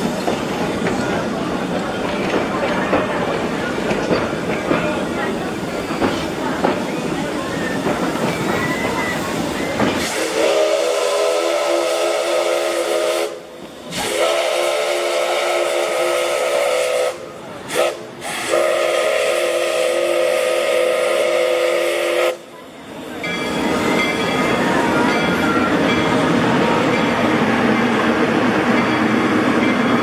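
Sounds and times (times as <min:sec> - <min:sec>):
train rolling past: 0:00.0 - 0:30.0
faint wheel squeal: 0:07.5 - 0:09.9.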